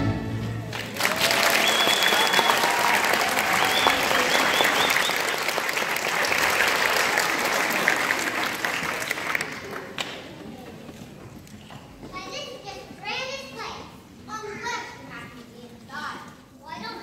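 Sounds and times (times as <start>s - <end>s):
audience applauding: 0.6s - 10.3s
high cheers: 0.7s - 9.3s.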